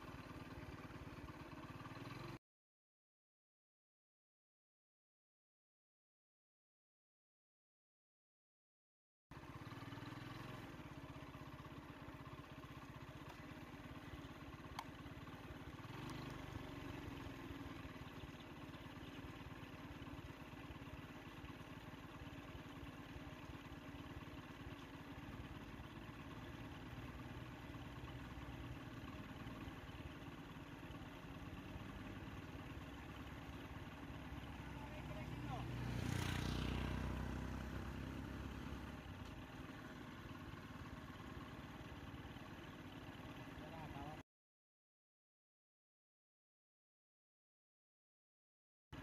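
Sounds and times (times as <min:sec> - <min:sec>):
vehicle engine idling: 0:00.0 - 0:02.4, 0:09.3 - 0:44.2.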